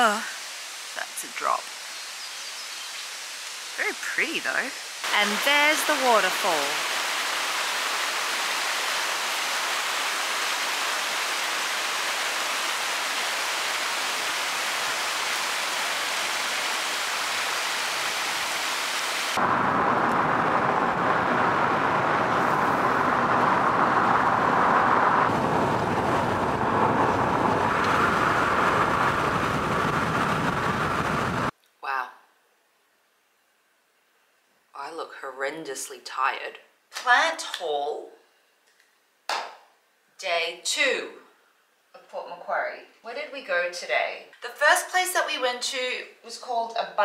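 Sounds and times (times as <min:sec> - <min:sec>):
water rushing down rocks: 0:03.2 - 0:29.7.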